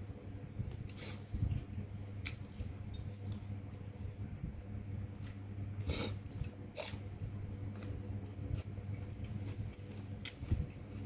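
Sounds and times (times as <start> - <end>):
steady low hum: 0.0 - 11.0
person chewing food: 6.0 - 11.0.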